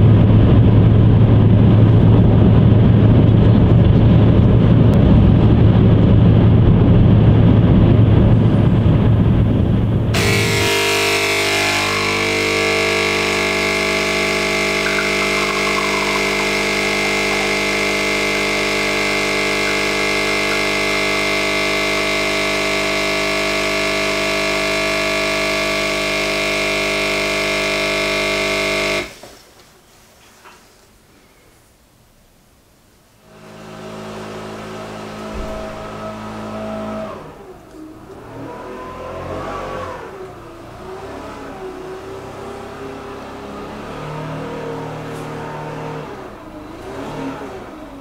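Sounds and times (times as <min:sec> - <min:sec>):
espresso machine pump buzzing: 0:10.2 - 0:29.2.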